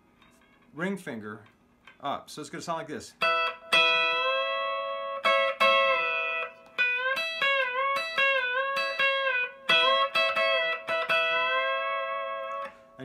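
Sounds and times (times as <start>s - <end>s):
electric lap steel guitar: 3.2s - 13.0s.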